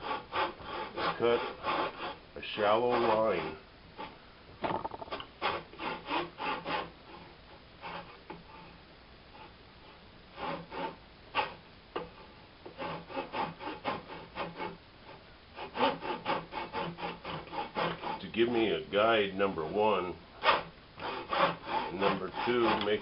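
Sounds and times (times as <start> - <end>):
hand saw cutting wood: 0.0 - 4.1, 5.0 - 8.8, 9.4 - 14.8, 15.6 - 23.0.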